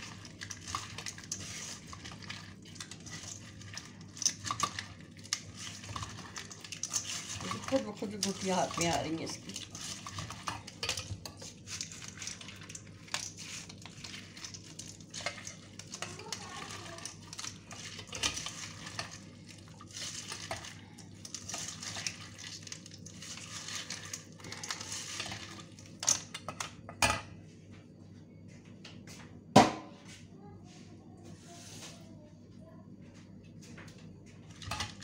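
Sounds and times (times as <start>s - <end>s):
squishing fruit pulp: 0.0s - 26.8s.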